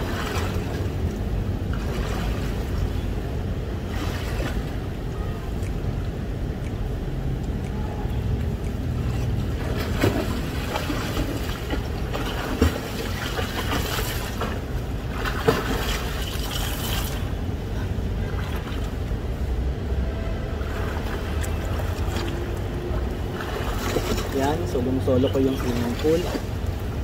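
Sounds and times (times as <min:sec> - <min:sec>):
swimmer splashing in pool: 0:09.6 - 0:17.2.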